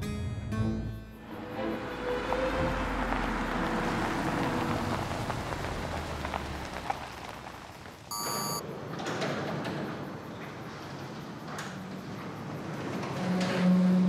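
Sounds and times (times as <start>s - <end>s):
car engine running low: 1.2s - 8.2s
short electronic beep: 8.1s - 8.6s
roll-up garage door opening: 8.6s - 14.0s.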